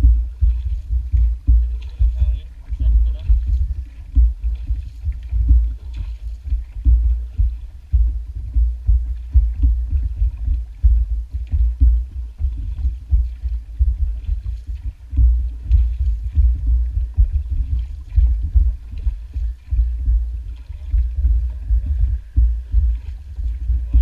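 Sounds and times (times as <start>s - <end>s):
water slapping against boat hull: 0.0s - 24.0s.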